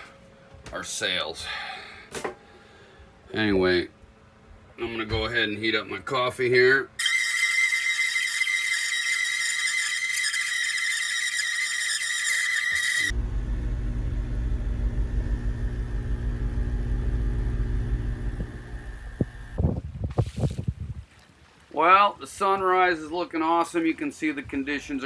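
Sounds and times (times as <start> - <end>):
high-pitched squealing tone: 7.0 - 13.2
boat engine droning: 13.0 - 19.6.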